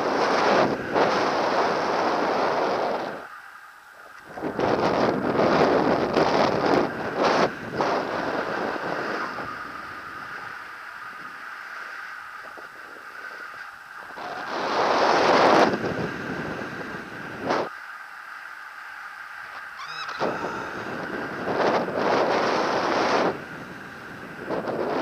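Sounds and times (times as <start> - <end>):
wind rushing over microphone: 0.0 - 3.4, 4.0 - 17.8, 19.1 - 25.0.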